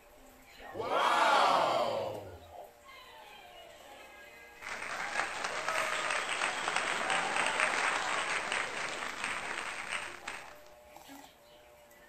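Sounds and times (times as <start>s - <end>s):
faint cheering: 0.6s - 2.6s, 4.6s - 10.8s
crowd applause: 4.6s - 10.7s.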